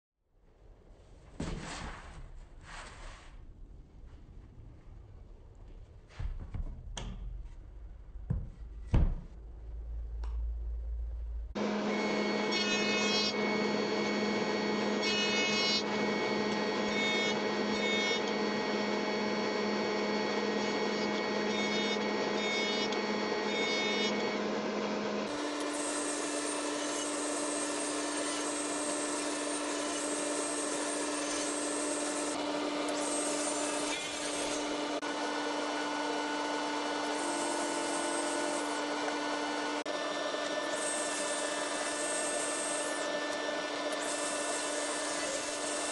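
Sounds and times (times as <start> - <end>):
jointer shaving wood: 11.6 - 45.9
table saw ripping wood: 25.2 - 45.9.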